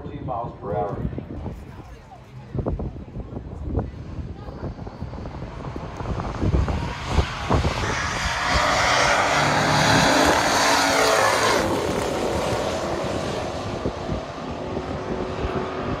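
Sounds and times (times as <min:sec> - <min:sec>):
cars racing at full throttle: 0:00.0 - 0:16.0.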